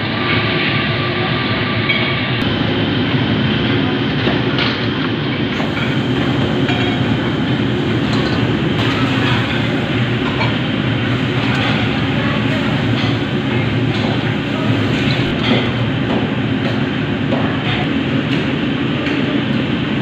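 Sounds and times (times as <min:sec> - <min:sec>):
kitchen fan roar: 0:00.0 - 0:20.0
utensils clinking: 0:07.9 - 0:15.8.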